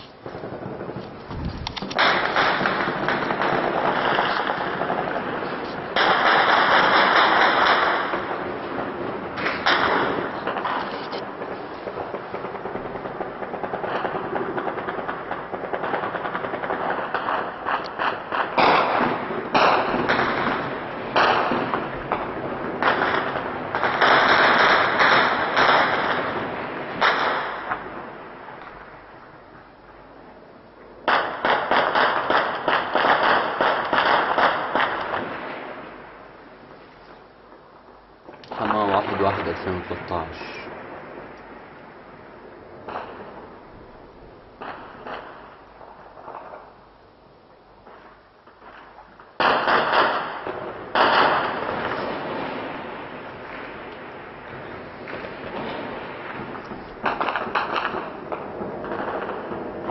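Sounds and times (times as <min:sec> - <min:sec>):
gunfire crackling: 0:00.0 - 0:29.4, 0:31.0 - 0:37.3, 0:38.3 - 0:47.0, 0:47.7 - 0:59.9
gunshots with echo: 0:01.7 - 0:17.5.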